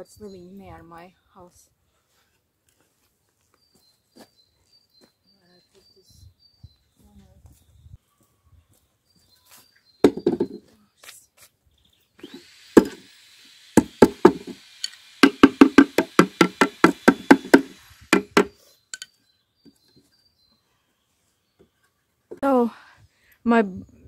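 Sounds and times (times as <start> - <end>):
knocking on wooden box: 10.0 - 10.6, 13.8 - 14.6, 15.2 - 18.5.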